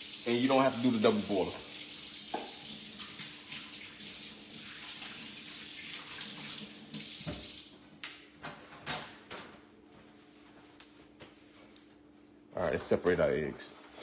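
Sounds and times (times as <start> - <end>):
tap running into sink: 2.2 - 3.4, 6.4 - 7.6.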